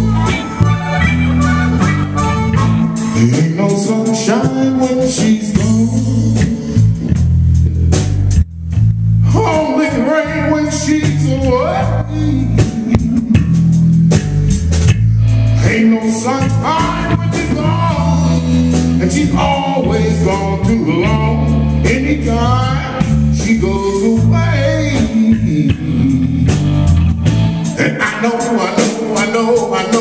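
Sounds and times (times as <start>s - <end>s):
bending electric guitar lead: 0.0s - 30.0s
live blues band playing: 0.0s - 30.0s.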